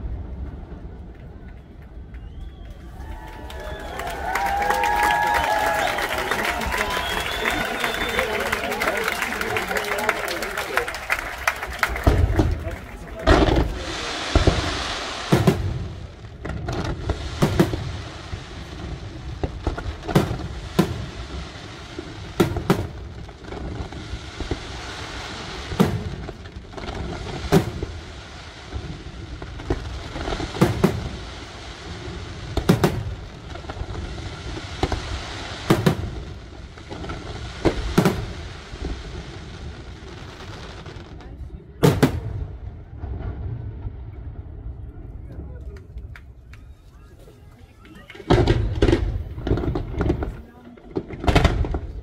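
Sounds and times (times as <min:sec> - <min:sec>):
low rumble of launches: 0:00.0 - 0:46.5
firework shells bursting: 0:04.2 - 0:28.0.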